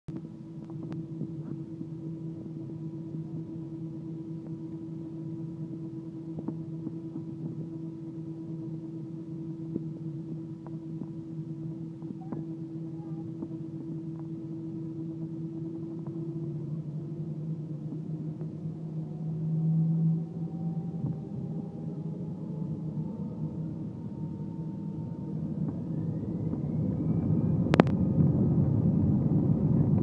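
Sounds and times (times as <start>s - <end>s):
airplane engines idling in cabin: 0.1s - 30.0s.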